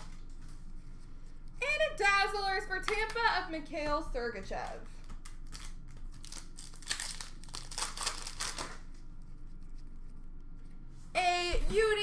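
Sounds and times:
foil wrapper crinkling: 0:04.6 - 0:10.0
cards rustling: 0:04.6 - 0:10.2.

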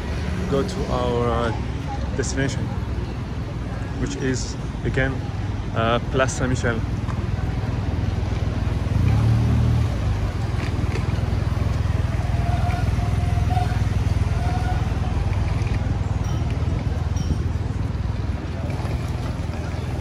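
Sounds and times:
traffic engines rumbling: 0:00.0 - 0:20.0
motorbike engine: 0:07.2 - 0:20.0.

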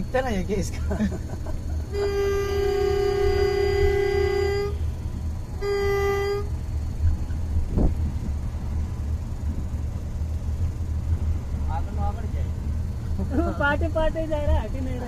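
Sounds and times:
low rumble of moving train: 0:00.0 - 0:15.0
locomotive horn blasts: 0:01.8 - 0:06.8.

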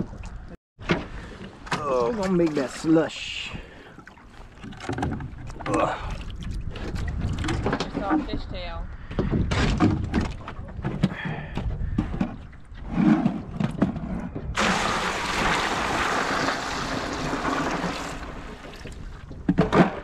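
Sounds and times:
water pouring into cooler: 0:14.6 - 0:19.2.

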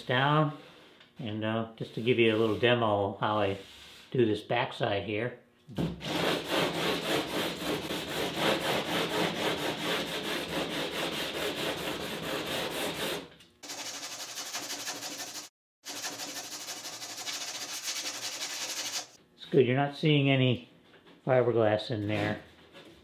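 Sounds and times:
hand sanding strokes: 0:03.5 - 0:04.1, 0:06.0 - 0:19.2.

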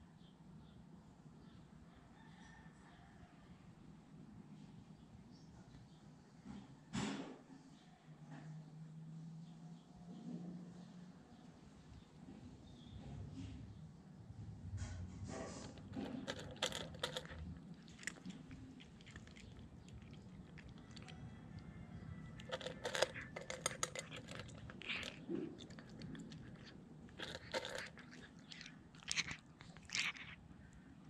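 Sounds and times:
cat crunching dry kibble: 0:15.6 - 0:30.8.

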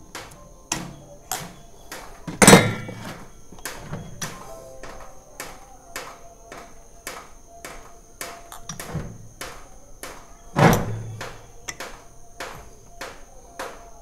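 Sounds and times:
loud metal thud: 0:02.3 - 0:03.2, 0:10.6 - 0:11.8
metal clinks and knocks: 0:02.3 - 0:03.2.

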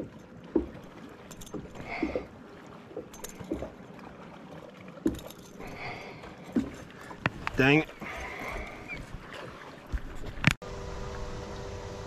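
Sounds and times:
small waves lapping against boat hull: 0:00.0 - 0:11.8.

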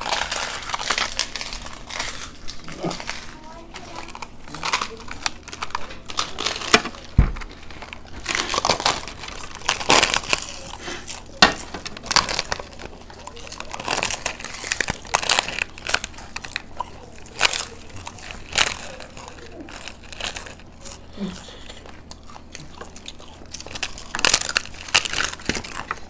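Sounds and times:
crisp shells cracking and crunching: 0:00.0 - 0:26.0.

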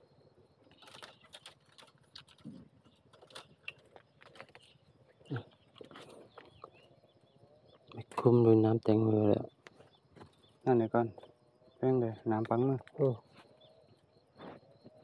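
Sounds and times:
dry leaves and twigs crackling: 0:00.6 - 0:07.1.

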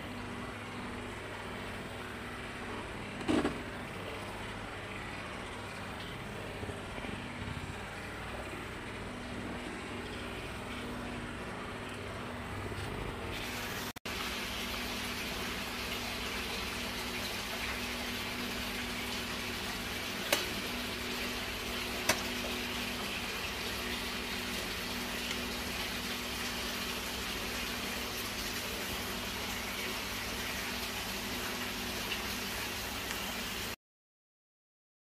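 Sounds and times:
kitchen background hiss: 0:13.2 - 0:33.8.

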